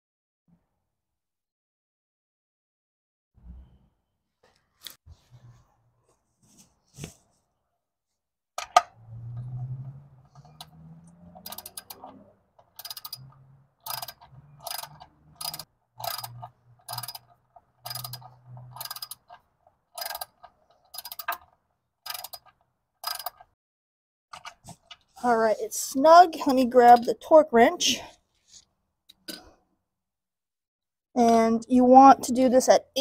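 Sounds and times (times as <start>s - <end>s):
socket ratchet clicking: 10.5s - 19.4s, 20.0s - 23.5s.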